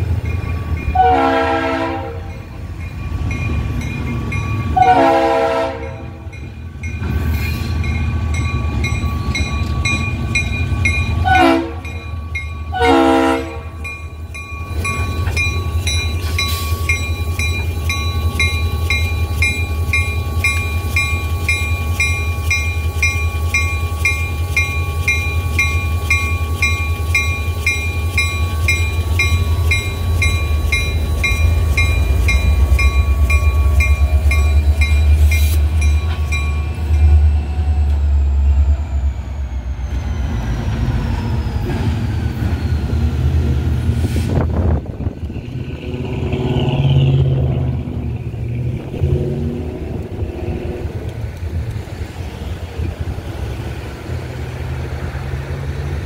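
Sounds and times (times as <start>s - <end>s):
locomotive bell ringing: 0.0s - 40.0s
locomotive horn blasts: 0.9s - 2.4s, 4.7s - 6.3s, 11.2s - 12.0s, 12.7s - 13.8s
diesel engines running: 27.0s - 56.0s.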